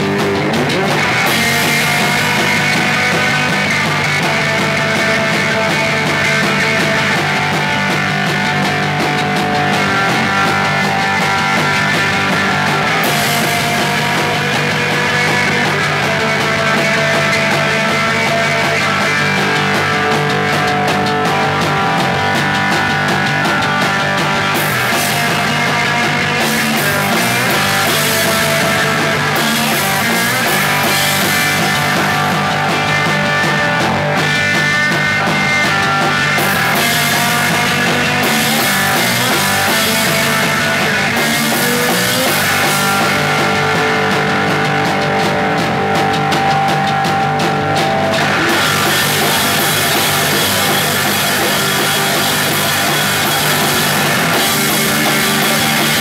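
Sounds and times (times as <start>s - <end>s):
punk rock band playing: 0.0s - 56.0s
cymbals washing: 47.5s - 56.0s.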